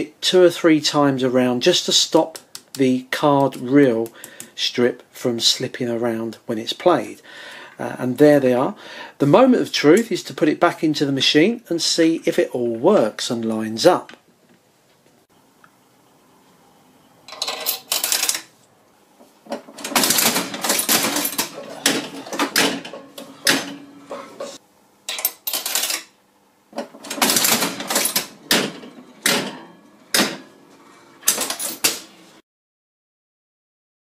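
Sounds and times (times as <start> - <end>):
slot machine clicks and clunks: 17.3 - 18.4, 19.7 - 26.1, 26.8 - 32.2.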